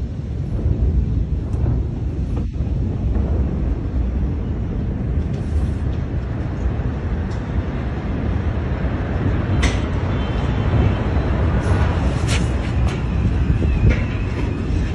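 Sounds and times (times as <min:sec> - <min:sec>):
low bass rumble: 0:00.0 - 0:09.5.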